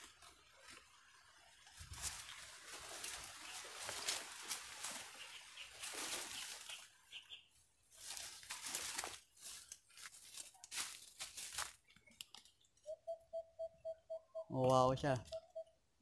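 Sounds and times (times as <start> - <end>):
banana leaves rustling: 0.0 - 12.3.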